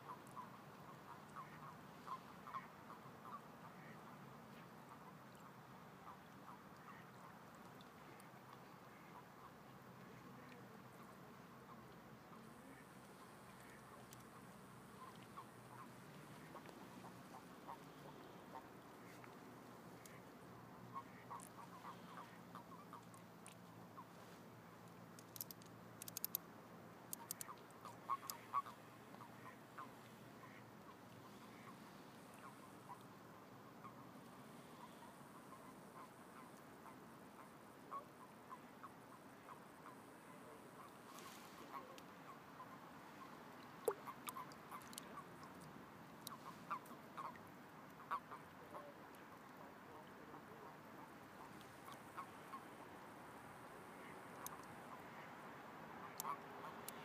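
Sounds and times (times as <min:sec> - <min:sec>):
toads croaking softly: 0:00.0 - 0:26.5, 0:27.1 - 0:57.0
sharp clicks: 0:25.2 - 0:26.4, 0:27.1 - 0:27.5.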